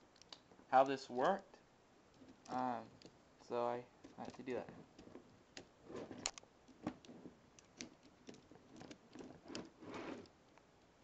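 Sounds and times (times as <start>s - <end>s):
plastic parts clicking and rattling: 4.0s - 10.3s
scraping rustle: 4.0s - 10.3s.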